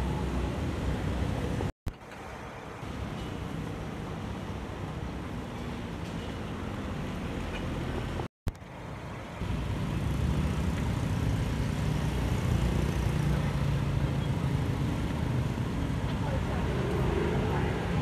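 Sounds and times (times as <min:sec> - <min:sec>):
low rumble of vehicle engines: 0:00.0 - 0:18.0.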